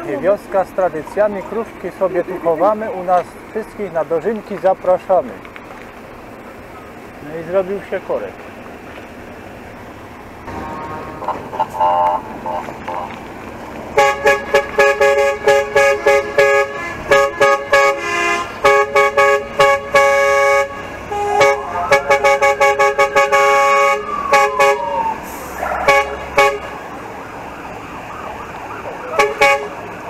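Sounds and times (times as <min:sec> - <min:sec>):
fire engine horns blaring: 0:09.8 - 0:30.0
siren sweeping up and down: 0:21.1 - 0:26.4.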